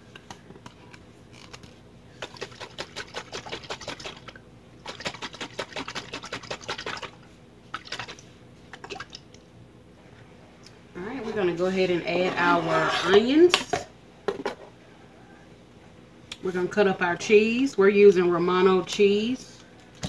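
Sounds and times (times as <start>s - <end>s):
liquid sloshing in shaken jar: 2.2s - 9.2s.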